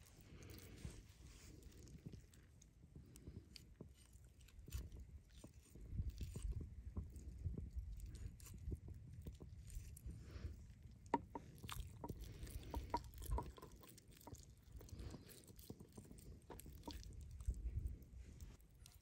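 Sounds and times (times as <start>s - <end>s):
wet squishing of raw meat: 0.0s - 19.0s.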